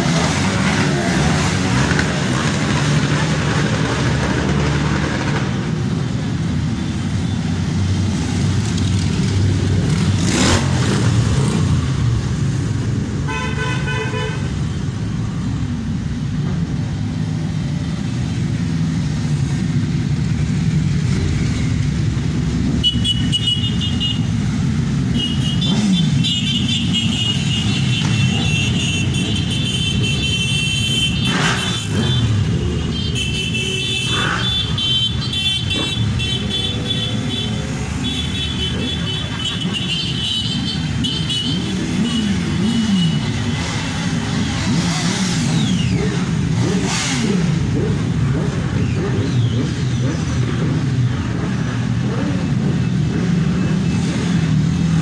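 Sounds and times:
motorcycles riding past: 0:14.4 - 0:55.0.

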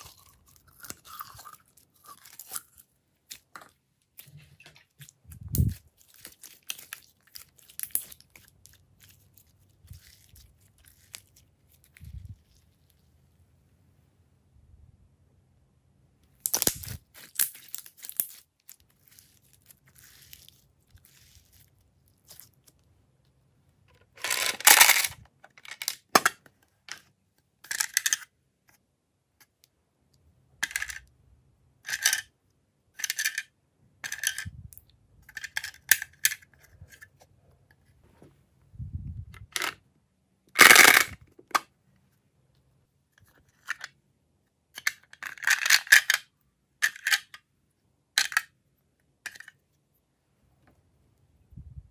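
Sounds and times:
plastic charms rattling in a box: 0:24.2 - 0:25.9.

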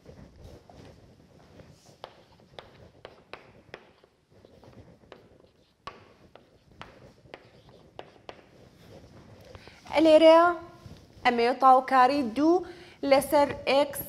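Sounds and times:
marker pen on whiteboard: 0:00.0 - 0:12.4, 0:13.2 - 0:14.0.

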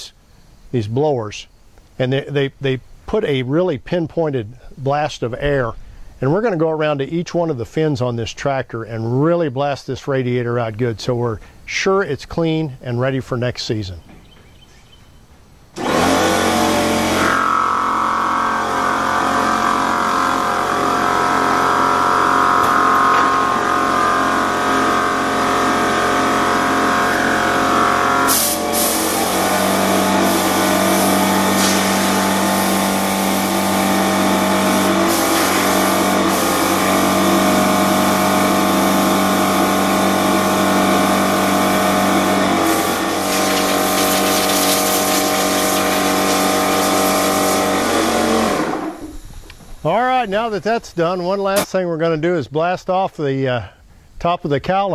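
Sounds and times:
steady drone: 0:15.8 - 0:50.6
compressed air hissing: 0:27.9 - 0:49.5.

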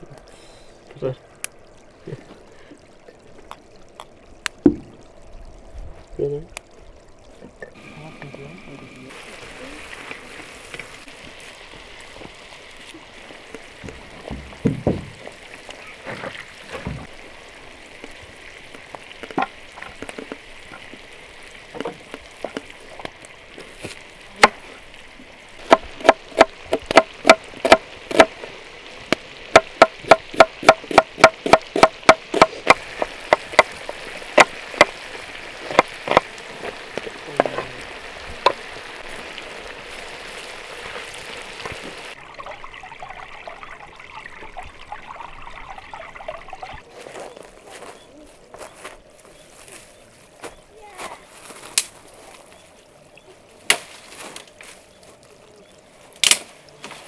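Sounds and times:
chicken sizzling in a pan: 0:07.8 - 0:13.8.

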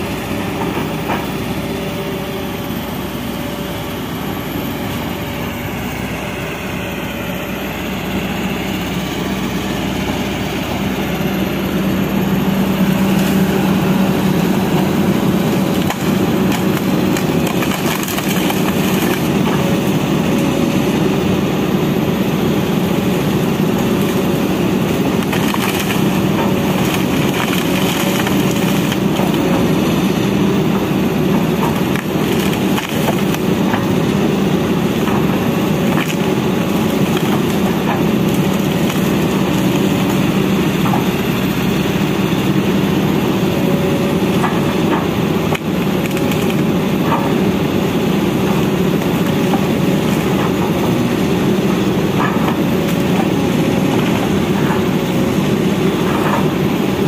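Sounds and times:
excavator diesel engine running: 0:00.0 - 0:57.0
bamboo stems cracking and snapping: 0:15.7 - 0:19.6, 0:25.0 - 0:29.6, 0:31.6 - 0:33.9, 0:35.8 - 0:40.2, 0:44.5 - 0:46.6.

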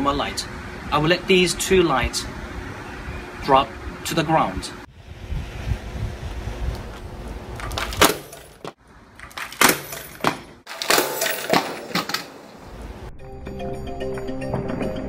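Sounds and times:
clattering bouncing impacts: 0:07.6 - 0:12.6
lamps crashing on concrete: 0:07.6 - 0:12.6.

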